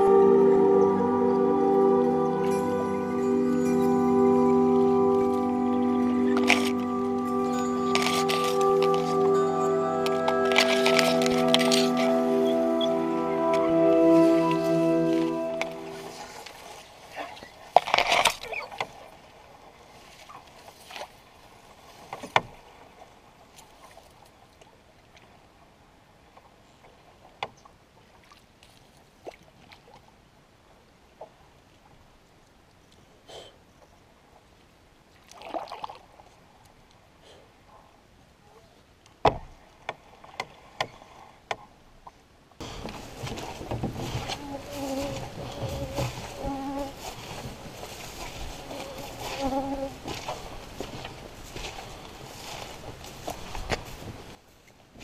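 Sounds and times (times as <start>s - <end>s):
reeds brushing along canoe hull: 0.0s - 24.2s, 42.6s - 55.0s
flying insects buzzing: 42.6s - 52.6s.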